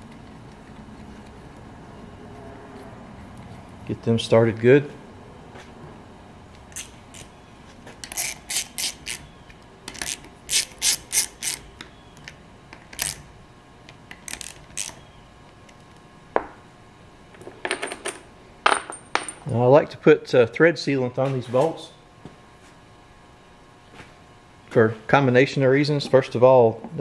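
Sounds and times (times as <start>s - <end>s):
hand ratchet clicking: 8.0s - 9.2s, 9.9s - 11.6s, 12.9s - 13.2s, 14.1s - 15.0s.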